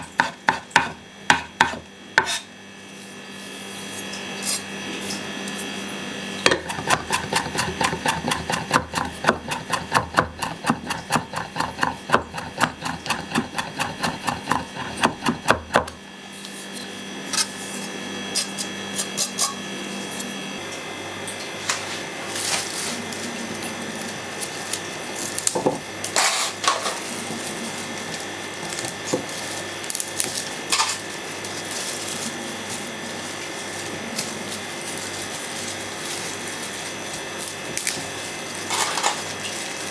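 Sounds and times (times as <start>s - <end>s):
knife chopping on wooden board: 0.0s - 2.4s, 6.5s - 16.0s.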